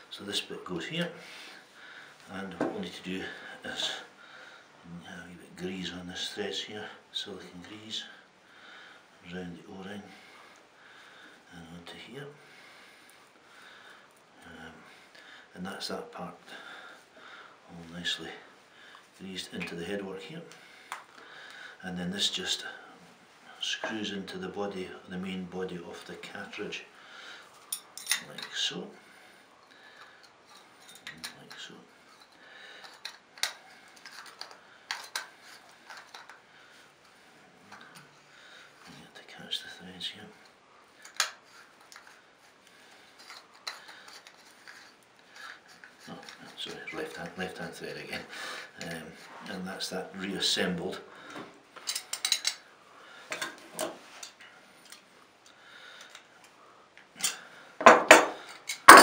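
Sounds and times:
light metallic clinks: 0:27.7 - 0:28.6
metal parts clicking and tapping: 0:32.2 - 0:36.4, 0:41.0 - 0:42.2, 0:43.2 - 0:46.4, 0:51.8 - 0:52.6, 0:57.2 - 0:59.0.

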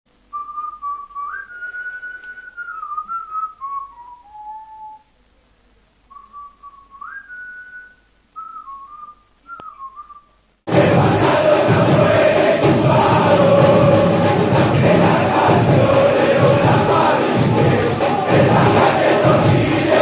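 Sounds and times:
person whistling a melody: 0:00.3 - 0:05.1, 0:06.2 - 0:10.3
loud crowd chanting: 0:10.7 - 0:20.0.

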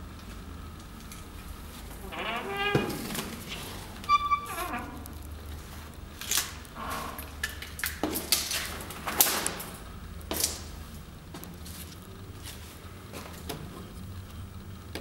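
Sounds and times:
short high squeak: 0:04.0 - 0:05.0.

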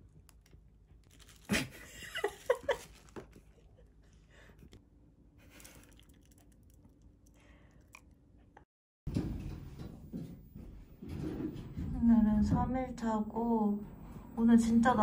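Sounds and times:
faint chewing: 0:05.4 - 0:08.6.

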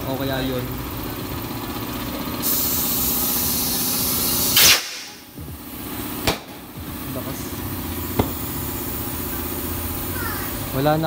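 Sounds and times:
compressed air hissing: 0:02.4 - 0:06.1, 0:07.9 - 0:10.8
sharp click: 0:04.6 - 0:05.2.

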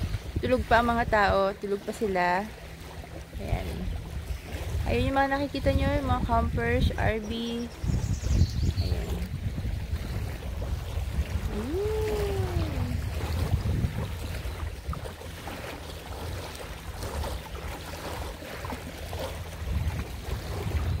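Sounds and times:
small waves washing: 0:00.0 - 0:21.0
wind on microphone: 0:00.0 - 0:21.0
rising and falling call: 0:11.5 - 0:13.0.

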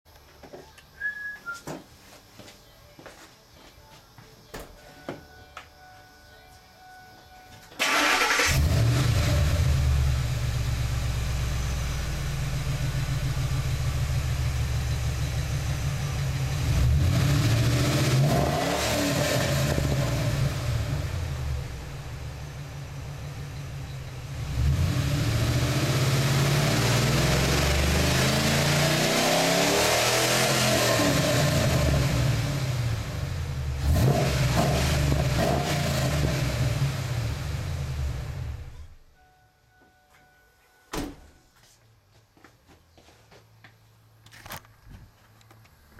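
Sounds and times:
truck engine idling and revving: 0:07.8 - 0:39.0.

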